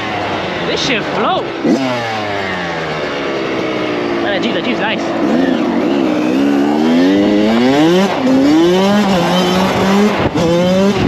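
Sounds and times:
dirt bike engine accelerating: 0:00.0 - 0:11.0.

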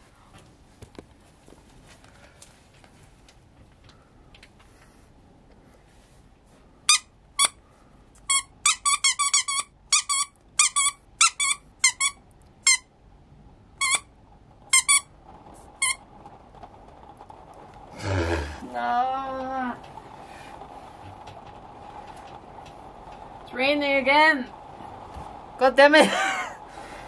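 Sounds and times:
dog toy squeaking: 0:08.3 - 0:12.8, 0:13.8 - 0:14.1, 0:14.7 - 0:15.1.

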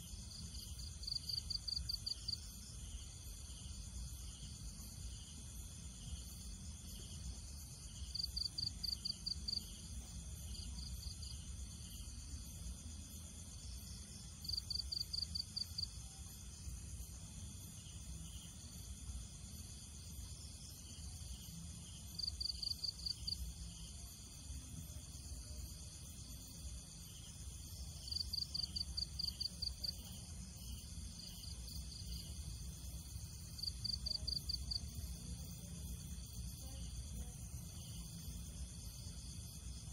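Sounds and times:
high insect drone: 0:00.0 - 0:39.9.

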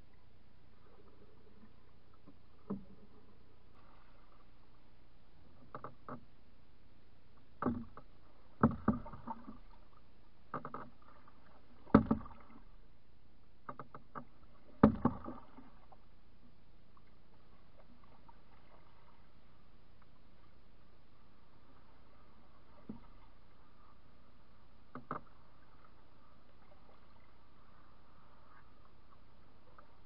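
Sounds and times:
paddle knocking against canoe hull: 0:07.6 - 0:09.7, 0:10.5 - 0:11.2, 0:11.8 - 0:12.6, 0:13.6 - 0:15.8.

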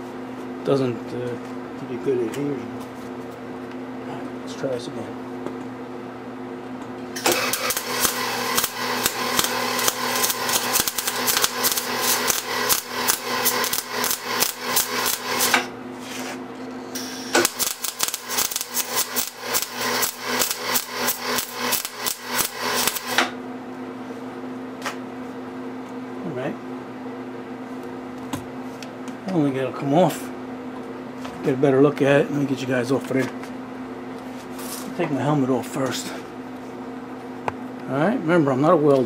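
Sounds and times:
mig welder arc crackling: 0:07.2 - 0:15.8, 0:16.9 - 0:23.4.

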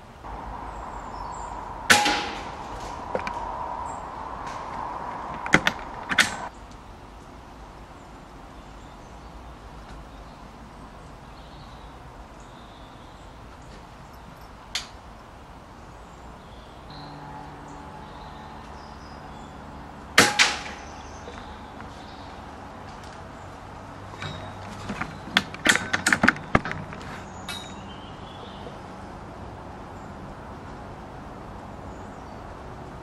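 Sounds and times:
air rifle shot: 0:01.8 - 0:03.3, 0:20.2 - 0:20.9
low steady hum: 0:14.0 - 0:27.4
sharp clicks and knocks: 0:24.2 - 0:27.6.

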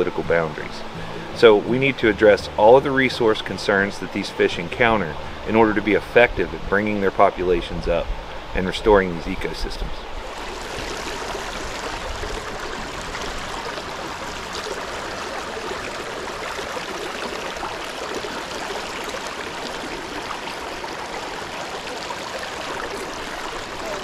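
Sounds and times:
creek running over rocks: 0:09.0 - 0:24.0.

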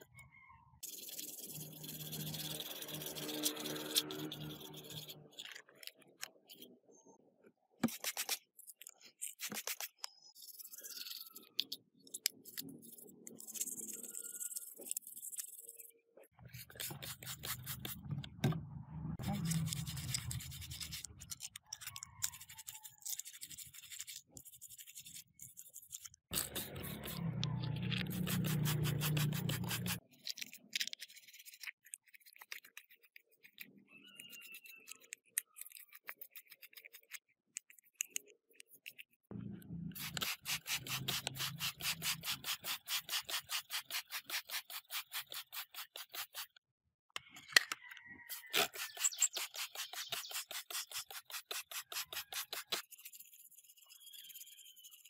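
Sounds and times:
abrasive rubbing on hard surface: 0:00.8 - 0:05.4, 0:26.3 - 0:30.0
low hum: 0:39.3 - 0:40.0.

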